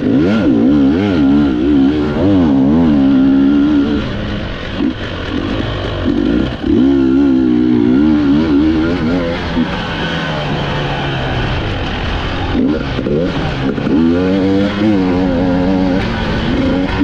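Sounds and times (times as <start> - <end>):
dirt bike engine revving: 0.0 - 17.0.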